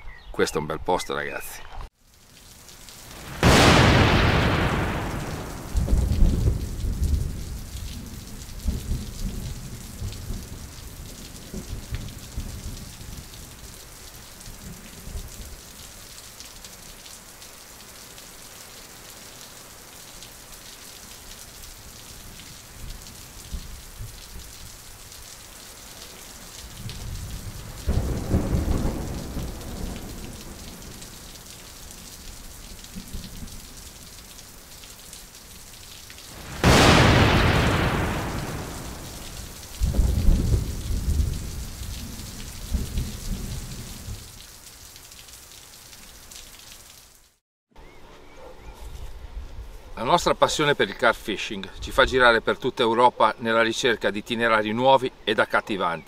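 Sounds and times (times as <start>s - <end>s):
steady rain hiss: 1.2s - 47.4s, 48.9s - 56.0s
thunder rumbling: 3.1s - 13.4s, 26.8s - 31.0s, 36.3s - 44.3s.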